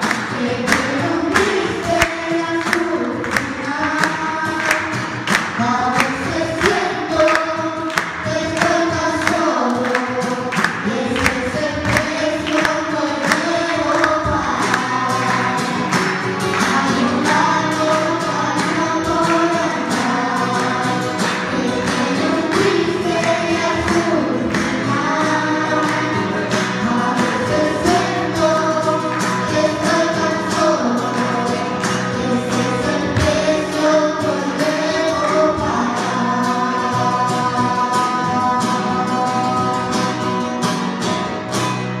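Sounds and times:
children singing together: 0:00.0 - 0:40.7.

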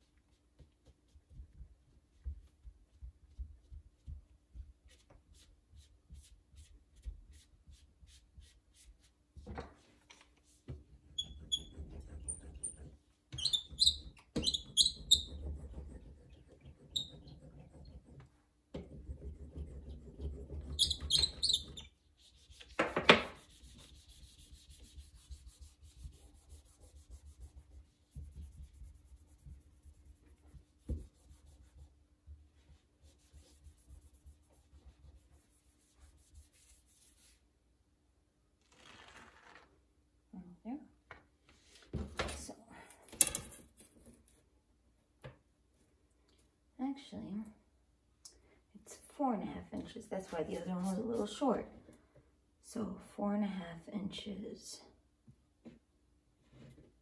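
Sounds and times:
clay rubbing and scraping: 0:03.0 - 0:37.5.

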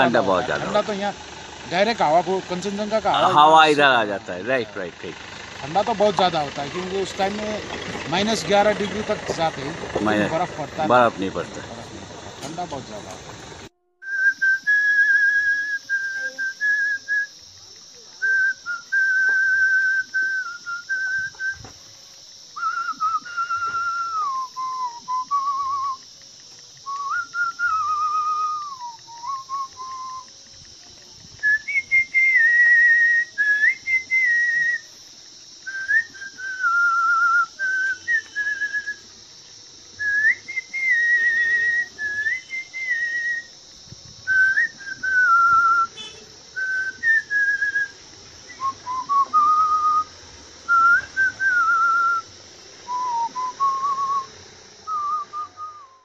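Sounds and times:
man whistling a slow tune: 0:14.0 - 0:17.4, 0:18.2 - 0:21.7, 0:22.6 - 0:26.1, 0:26.8 - 0:30.3, 0:31.4 - 0:34.9, 0:35.6 - 0:39.1, 0:40.0 - 0:43.6, 0:44.2 - 0:50.1, 0:50.7 - 0:56.0.

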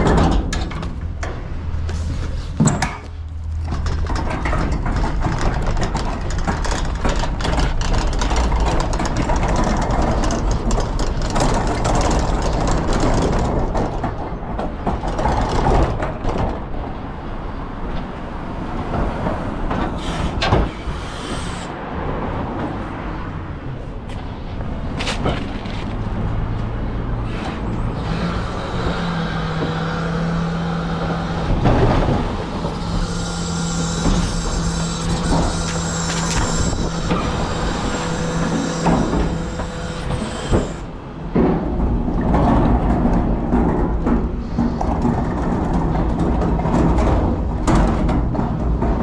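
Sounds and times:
road noise: 0:00.0 - 0:49.0
truck engine running: 0:27.4 - 0:42.0.

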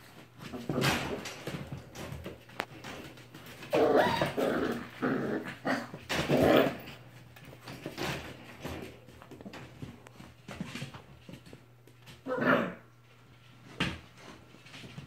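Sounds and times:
paws clicking on floor: 0:00.0 - 0:12.3
puppies play-growling: 0:00.0 - 0:15.0.

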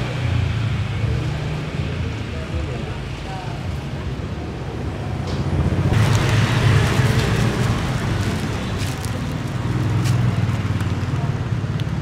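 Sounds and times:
street traffic rumble: 0:00.0 - 0:12.0
plastic sheet crinkling: 0:06.0 - 0:11.1.

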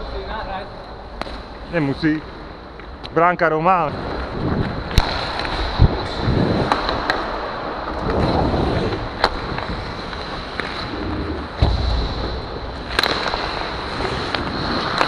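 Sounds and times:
hockey sticks and puck clacking: 0:01.2 - 0:01.6, 0:04.8 - 0:15.0
skate blades scraping ice: 0:04.0 - 0:11.6, 0:12.4 - 0:15.0.

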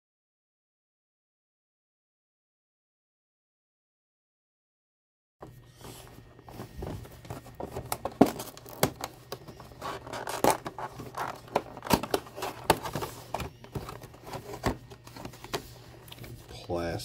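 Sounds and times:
cardboard box rustling and scraping: 0:05.4 - 0:16.6.

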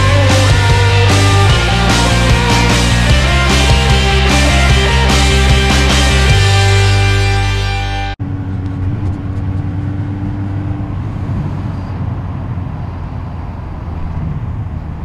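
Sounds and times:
rock music: 0:00.0 - 0:08.2
motorcycle engine running: 0:00.0 - 0:11.9.

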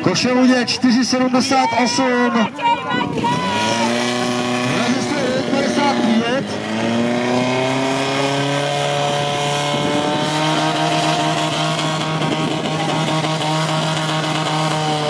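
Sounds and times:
pump engine running at high revs: 0:03.2 - 0:15.0.

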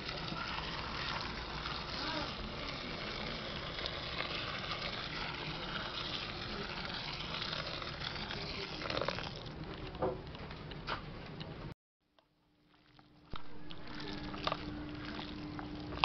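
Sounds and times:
hot water pouring onto noodles: 0:00.0 - 0:09.5.

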